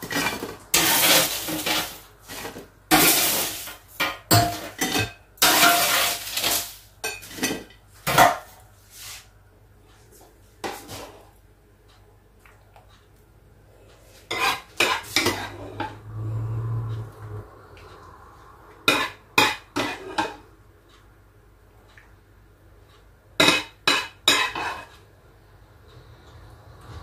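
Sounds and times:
utensils clattering on pots and dishes: 0.0 - 8.6, 14.3 - 16.0, 18.8 - 20.5, 23.4 - 25.0.

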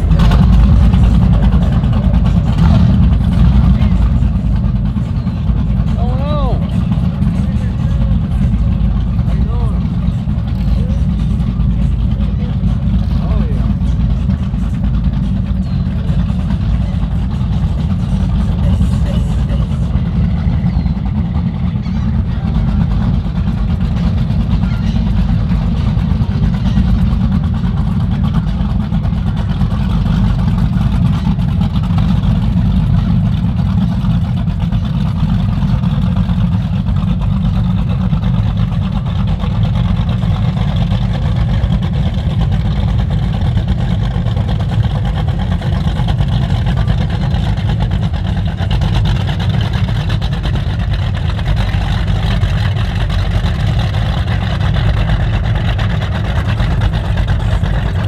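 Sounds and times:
boat engines rumbling: 0.0 - 58.0.

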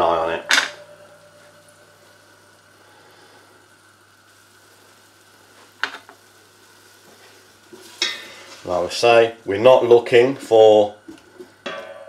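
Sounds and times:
low hum: 0.0 - 5.5
bacon sizzling in a pot: 0.0 - 12.0.

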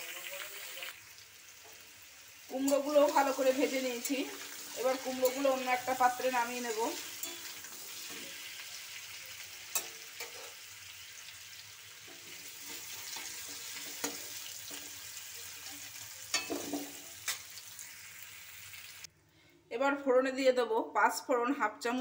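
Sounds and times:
food sizzling in hot oil: 0.0 - 19.1
metal spoon scraping a pan: 2.6 - 8.6, 9.4 - 10.7, 12.0 - 17.5.

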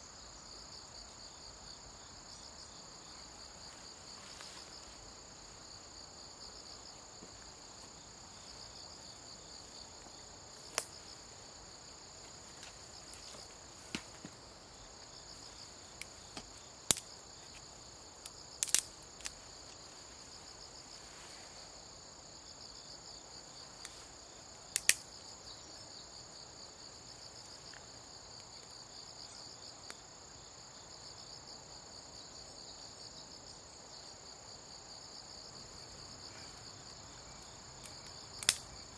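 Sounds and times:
insects trilling: 0.0 - 38.9
sharp clicks or snaps: 16.9 - 17.1, 18.6 - 19.4, 24.8 - 25.0, 37.8 - 38.7.

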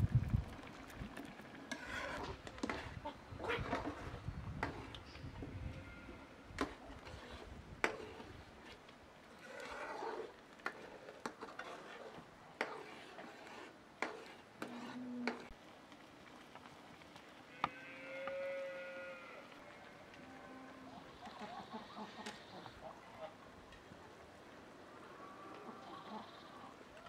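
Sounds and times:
farm animal bleat: 5.4 - 6.4, 17.5 - 22.7, 25.5 - 26.7
low animal call: 25.0 - 27.0.

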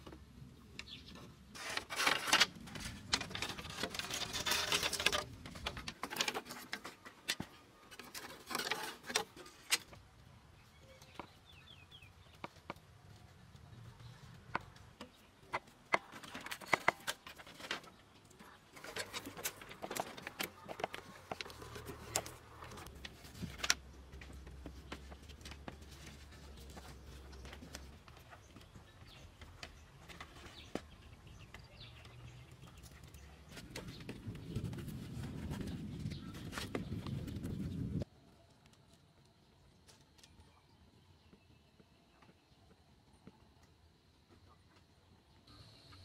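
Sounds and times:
rustling: 1.1 - 11.3, 12.4 - 38.1.

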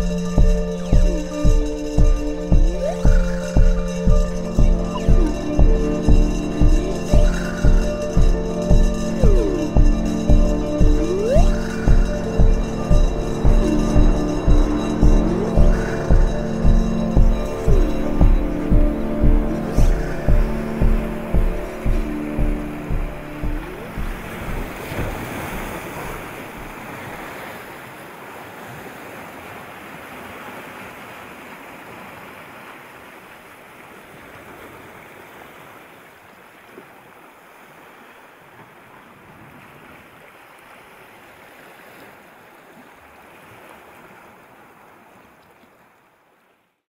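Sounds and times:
sea surf washing over rocks: 13.6 - 36.0.

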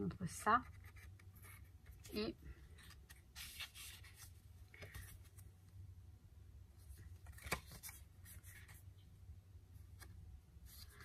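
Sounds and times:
paper cards rustling: 0.6 - 5.5, 6.8 - 8.8.

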